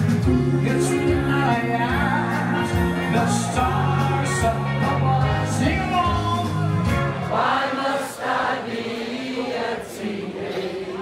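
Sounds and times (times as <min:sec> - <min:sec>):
person singing: 0:00.0 - 0:06.9
steady bass line: 0:00.0 - 0:07.3
live band playing: 0:00.0 - 0:07.6.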